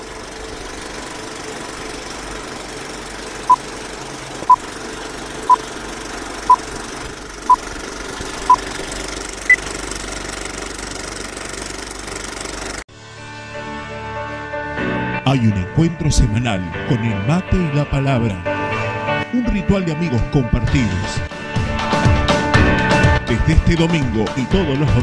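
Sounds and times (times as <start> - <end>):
film projector rattle: 0.0 - 12.8.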